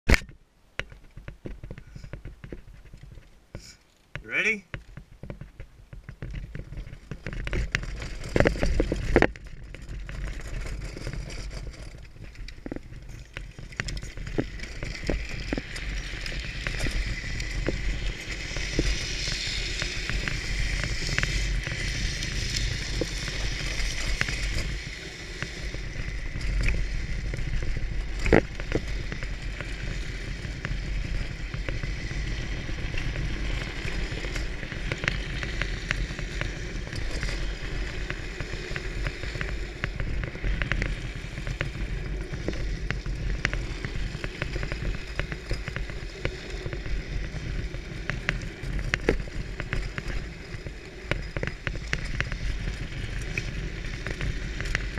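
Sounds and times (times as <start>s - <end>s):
wheels rumbling on asphalt: 0.1s - 54.9s.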